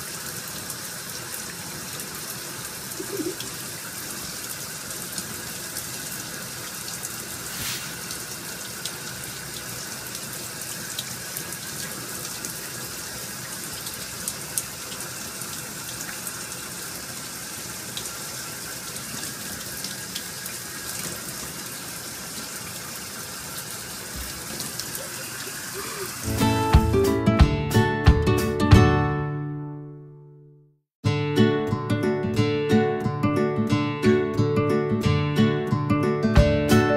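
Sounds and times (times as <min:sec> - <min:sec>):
water running: 0:00.0 - 0:27.0.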